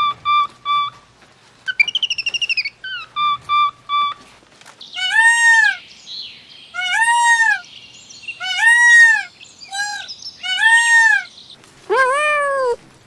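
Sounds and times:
peacock wailing call: 0:00.0 - 0:01.0, 0:01.7 - 0:04.2, 0:04.9 - 0:05.8, 0:06.7 - 0:07.6, 0:08.4 - 0:11.3
small bird trilling and whistling: 0:01.7 - 0:04.2.

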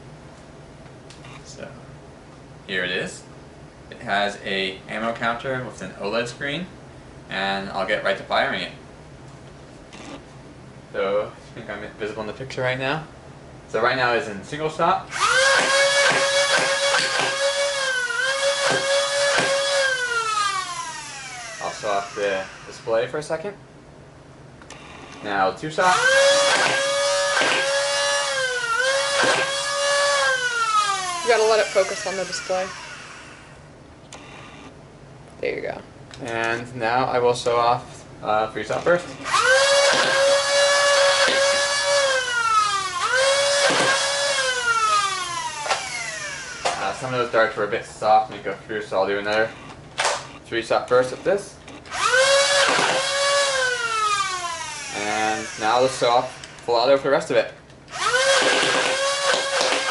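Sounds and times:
flywheel motors whining: 0:15.1 - 0:22.9, 0:25.8 - 0:33.6, 0:39.2 - 0:47.1, 0:51.9 - 0:56.7, 0:57.9 - 0:59.9.

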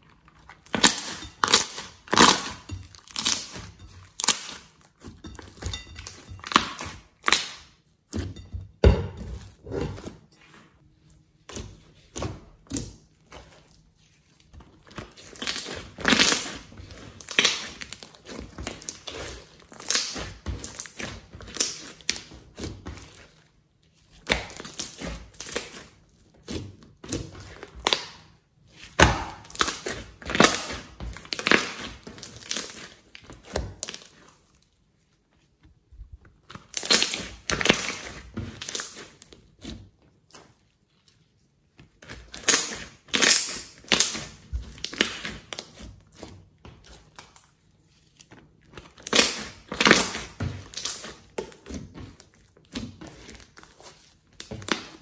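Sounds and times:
hands squeezing slime: 0:11.9 - 0:35.5, 0:36.3 - 0:55.0.

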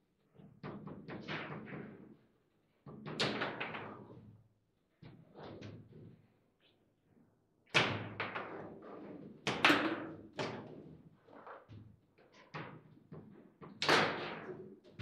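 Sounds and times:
foosball ball knocks and clacks: 0:02.9 - 0:04.2, 0:07.8 - 0:11.7, 0:12.4 - 0:15.0.

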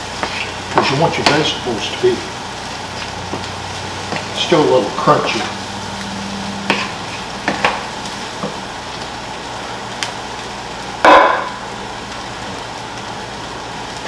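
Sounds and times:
rice sizzling in a skillet: 0:00.0 - 0:14.0
wooden spatula knocking pan: 0:00.2 - 0:01.5, 0:11.0 - 0:11.6.

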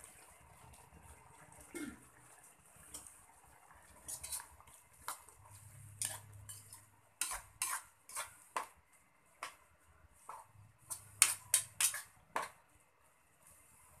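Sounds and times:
metal ladle scraping a wok: 0:03.8 - 0:08.4, 0:10.8 - 0:12.2.

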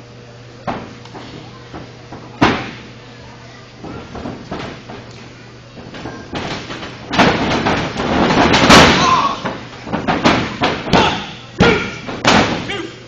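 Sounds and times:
bodies slamming onto a ring mat: 0:02.4 - 0:02.9, 0:06.4 - 0:12.7.

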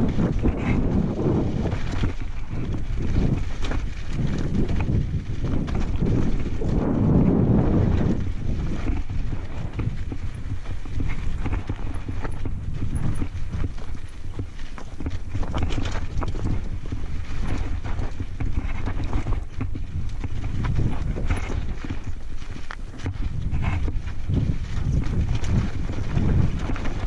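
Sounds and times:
bike rattling: 0:00.0 - 0:27.0
tyres crunching over stones: 0:00.0 - 0:27.0
wind on microphone: 0:00.0 - 0:27.0.

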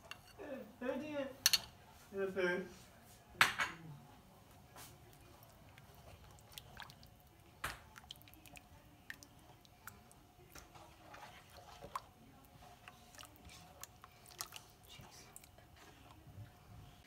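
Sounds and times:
spoon stirring sauce in a pan: 0:04.4 - 0:17.0.

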